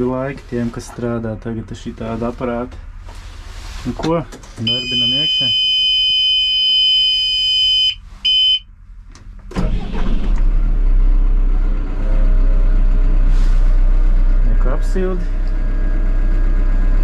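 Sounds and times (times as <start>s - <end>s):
diesel engine starting and idling: 0.0s - 5.6s, 8.0s - 17.0s
warning buzzer: 4.6s - 8.6s.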